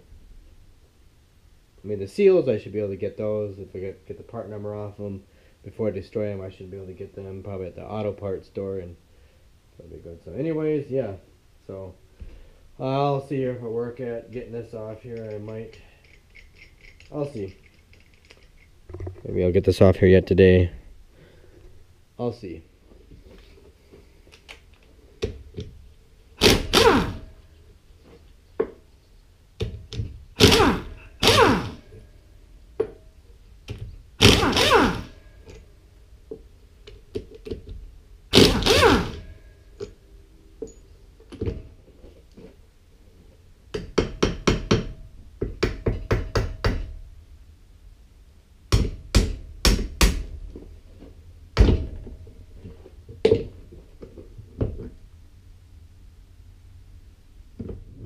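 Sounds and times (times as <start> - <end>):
impact wrench bursts: 26.4 - 27.3, 30.3 - 32.0, 34.2 - 35.4, 38.3 - 39.4.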